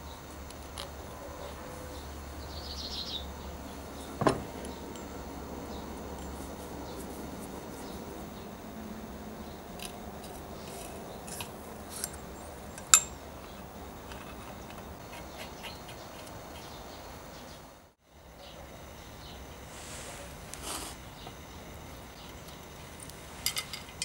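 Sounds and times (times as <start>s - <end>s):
steady hiss: 16.3s - 24.0s.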